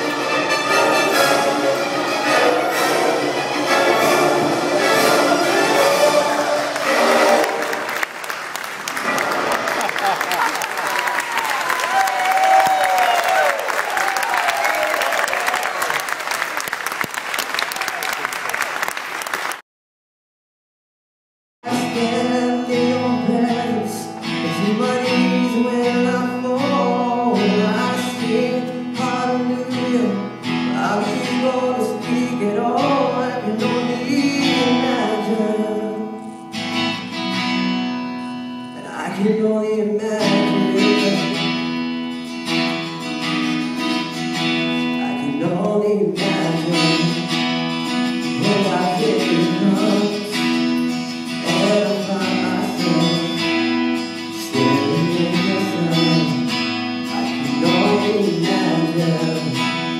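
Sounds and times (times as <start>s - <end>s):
person singing: 21.7s - 36.4s, 38.7s - 41.7s, 44.8s - 47.4s, 48.2s - 59.9s
strummed acoustic guitar: 21.7s - 59.9s.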